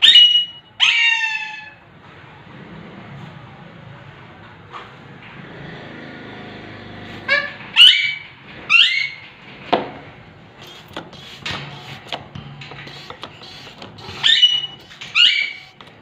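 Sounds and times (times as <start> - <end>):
parakeet calls: 13.4 - 15.8.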